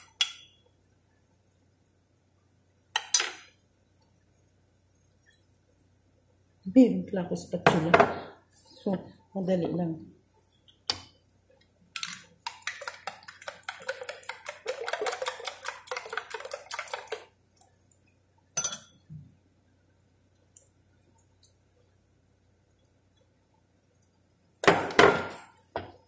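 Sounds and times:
eggs beaten in a bowl: 0:12.0 - 0:17.7.

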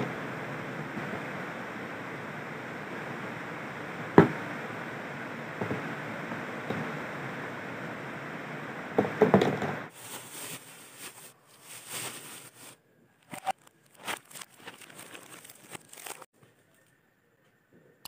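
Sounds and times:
plastic packaging crinkling: 0:09.9 - 0:16.3.

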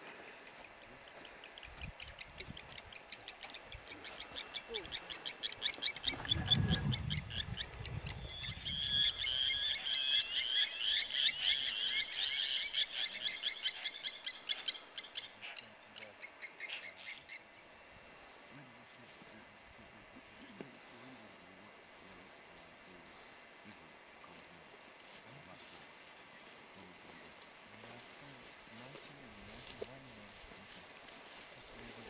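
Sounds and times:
rapid animal calls: 0:00.0 - 0:17.7.

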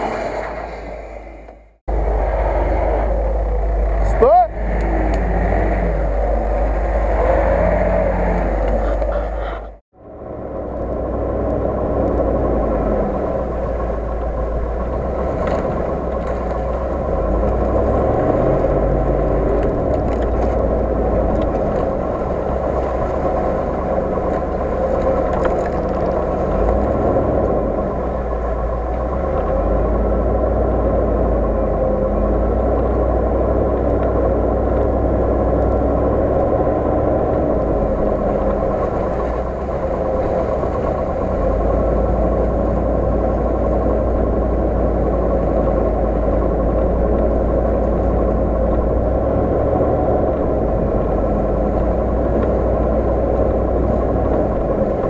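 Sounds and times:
car engine running: 0:00.0 - 0:55.0.

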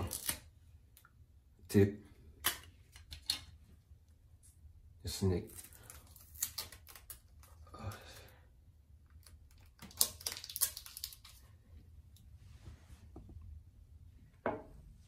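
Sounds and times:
tape being torn: 0:00.0 - 0:00.5, 0:02.4 - 0:03.5, 0:05.5 - 0:07.5, 0:09.2 - 0:11.4.

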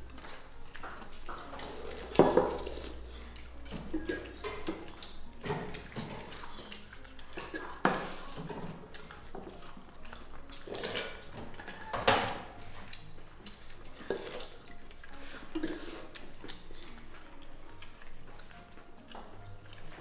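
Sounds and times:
tableware clinking: 0:01.3 - 0:02.8, 0:03.7 - 0:06.4, 0:07.3 - 0:08.6.

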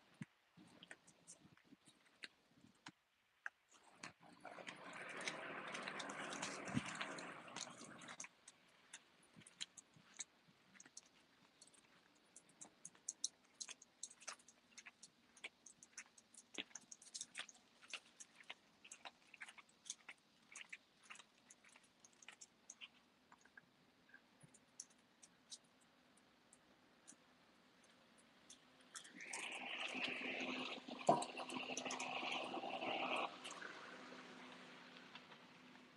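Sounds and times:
dog claws clicking on paving: 0:05.2 - 0:23.6.

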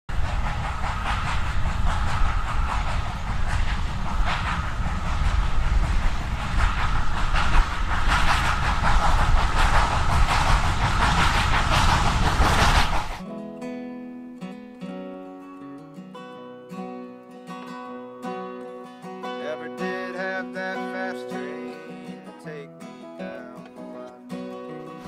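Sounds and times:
steam train rumble with hiss: 0:00.1 - 0:13.2, 0:19.2 - 0:25.0.

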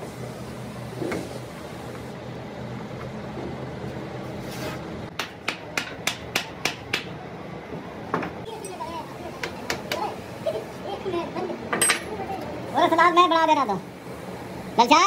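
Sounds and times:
hammer tapping a punch: 0:05.1 - 0:07.1.

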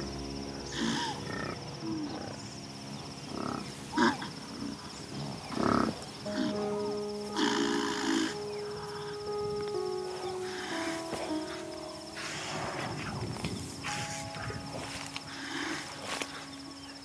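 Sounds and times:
background music: 0:00.0 - 0:17.0
insect trill: 0:00.0 - 0:17.0
animals growling and snarling: 0:03.2 - 0:06.6.

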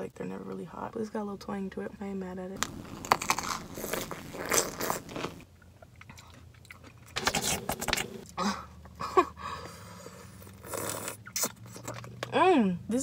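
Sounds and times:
crunchy chewing of pickle: 0:02.6 - 0:08.4, 0:10.2 - 0:12.3.

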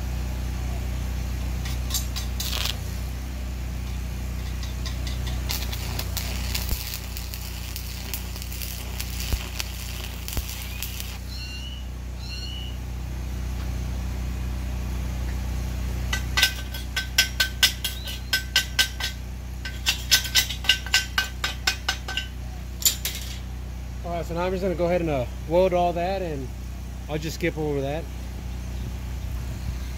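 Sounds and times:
steady low hum: 0:00.0 - 0:29.9
welding arc crackling and sizzling: 0:01.6 - 0:03.2, 0:04.3 - 0:11.3, 0:16.1 - 0:23.4
chipping hammer tapping metal: 0:04.4 - 0:11.2, 0:16.1 - 0:23.4.

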